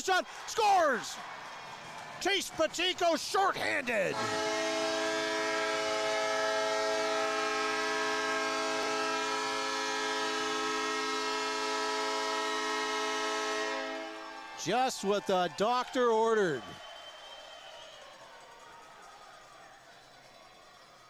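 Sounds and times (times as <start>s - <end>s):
goal horn blast: 4.1s - 14.2s.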